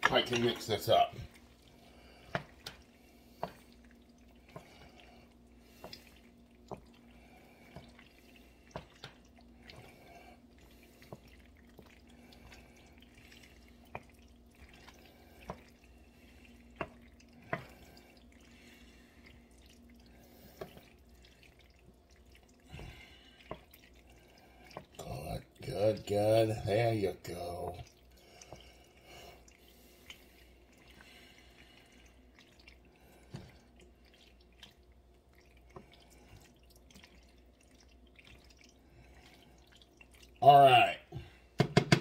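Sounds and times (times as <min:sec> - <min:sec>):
faint steady hum: 0:00.0 - 0:41.6
tongs and spoon knocking on pan: 0:41.6 - 0:42.0.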